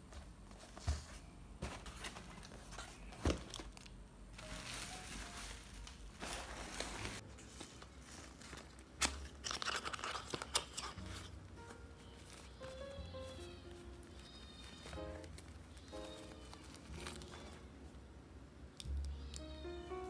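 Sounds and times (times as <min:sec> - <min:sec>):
tape and paper tearing and crinkling: 0:03.5 - 0:11.3, 0:14.1 - 0:17.6.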